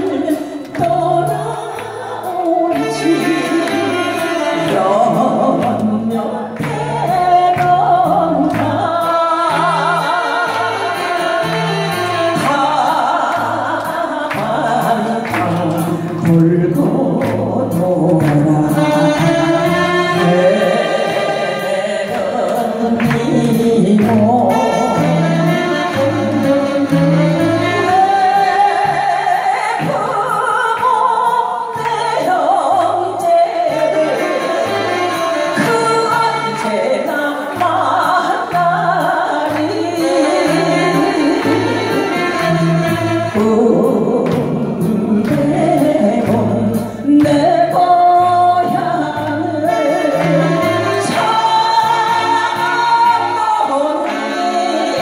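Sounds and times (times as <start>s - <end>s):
woman singing into a microphone: 0.0s - 55.0s
saxophones: 2.6s - 6.3s, 7.0s - 13.8s, 18.4s - 29.6s, 33.3s - 44.2s, 48.4s - 55.0s.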